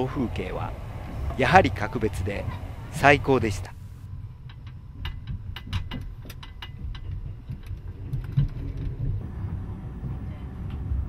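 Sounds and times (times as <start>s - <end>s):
train passing alongside: 0.0s - 4.0s, 9.0s - 11.0s
train low rumble: 0.0s - 5.5s, 6.1s - 11.0s.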